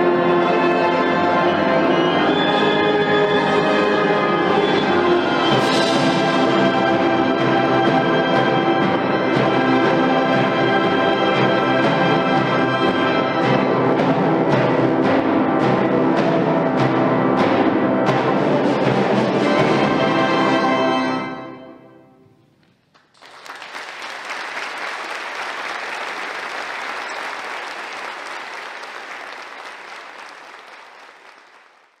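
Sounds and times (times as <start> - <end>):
timpani strokes: 0.0 - 21.6
audience applauding: 22.9 - 32.0.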